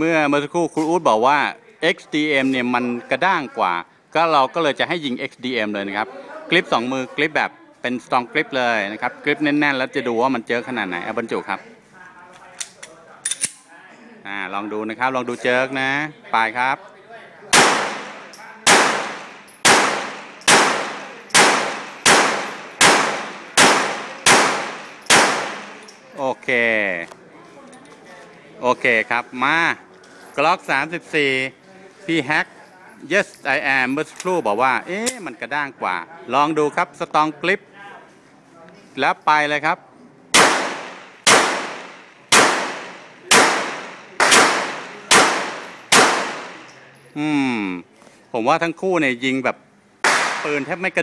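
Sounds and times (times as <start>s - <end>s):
pistol shots with echo: 17.5s - 25.9s, 40.3s - 46.7s, 50.0s - 50.7s.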